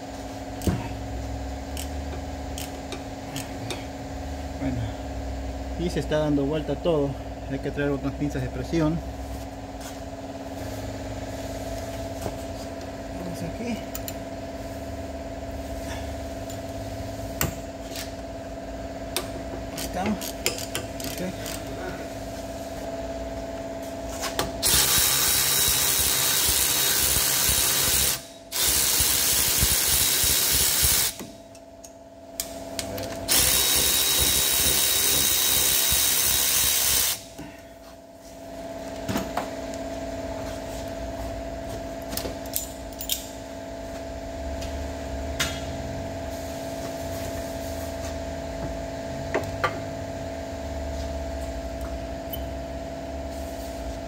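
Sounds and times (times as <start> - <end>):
power wrench spinning bolts: 24.6 - 31.2, 33.3 - 37.2.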